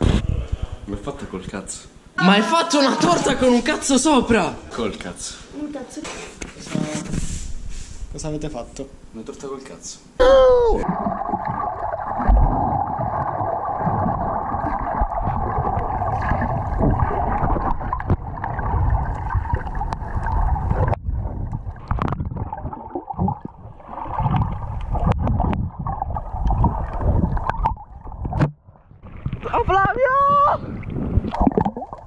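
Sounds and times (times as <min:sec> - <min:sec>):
bubbling: 0:10.7 - 0:32.0
scattered clicks underwater: 0:15.0 - 0:22.6, 0:24.2 - 0:28.5.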